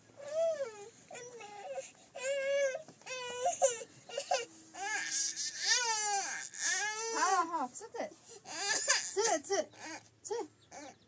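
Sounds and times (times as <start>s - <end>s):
toddler crying and whining: 0.2s - 7.5s, 8.4s - 10.1s, 10.7s - 11.0s.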